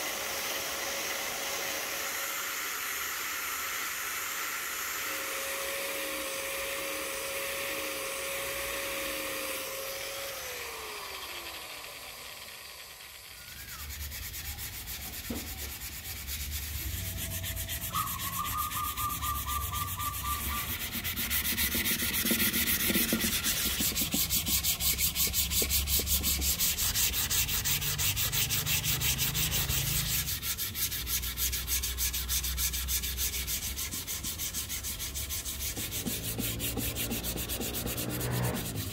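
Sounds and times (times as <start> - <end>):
angle grinder spinning down: 0.0 - 30.9, 36.3 - 38.9
sandpaper rubbing on wood: 13.6 - 38.9.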